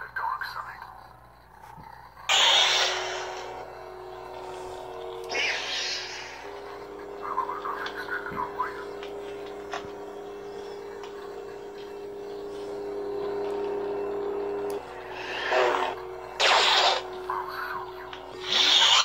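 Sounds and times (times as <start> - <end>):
hissing power-down sounds: 2.3 - 12.8
lightsabers humming: 2.3 - 19.0.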